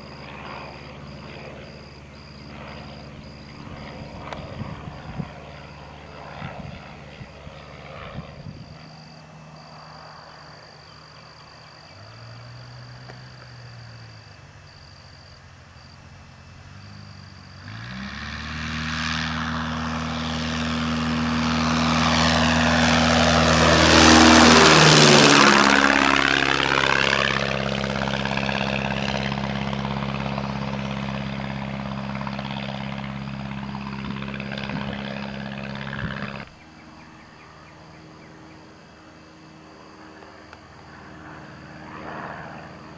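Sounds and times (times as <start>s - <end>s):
light airplane passing overhead: 0.0s - 42.9s.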